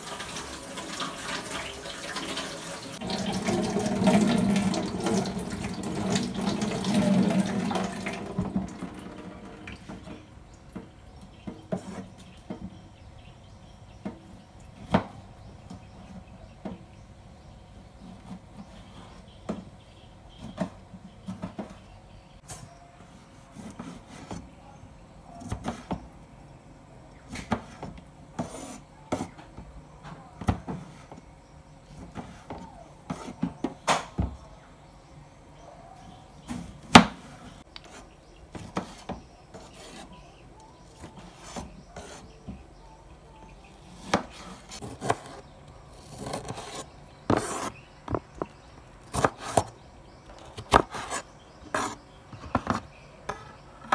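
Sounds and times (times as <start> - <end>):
vegetable pieces rubbing: 37.5 - 42.4, 43.8 - 49.8, 50.4 - 53.0.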